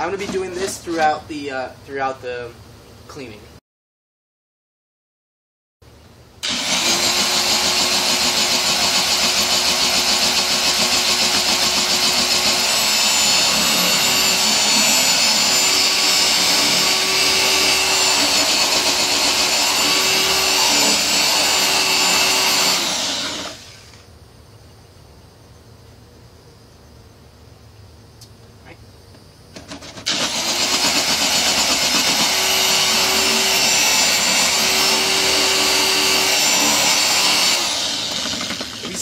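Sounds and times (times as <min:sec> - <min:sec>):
electric car polisher running: 0:06.4 - 0:23.9, 0:30.1 - 0:39.0.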